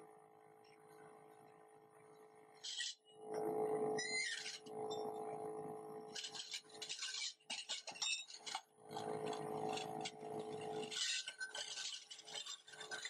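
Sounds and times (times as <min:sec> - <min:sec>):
machine hum: 0:01.2 - 0:07.4, 0:08.6 - 0:11.2.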